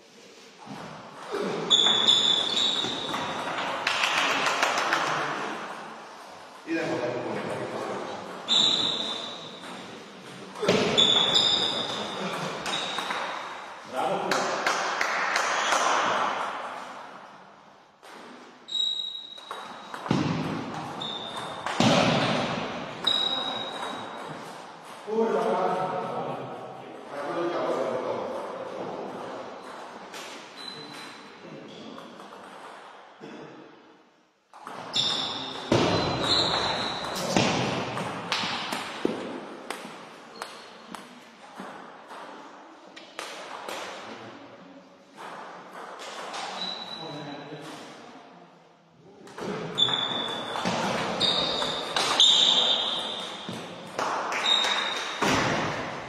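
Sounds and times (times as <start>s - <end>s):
table tennis ball hits: 0.7s - 5.9s, 8.2s - 13.6s, 19.2s - 25.0s, 34.5s - 44.0s, 49.3s - 56.0s
short high squeaks: 1.7s - 3.4s, 8.5s - 9.6s, 10.9s - 13.1s, 18.7s - 19.6s, 23.0s - 24.2s, 30.6s - 31.1s, 34.9s - 37.3s, 46.5s - 47.3s, 49.8s - 53.4s.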